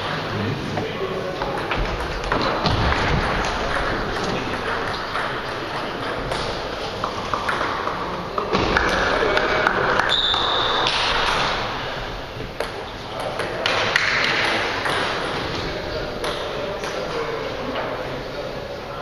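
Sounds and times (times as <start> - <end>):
murmur of voices: 0.0 - 19.0
table tennis balls ticking: 1.2 - 11.4, 12.4 - 17.3.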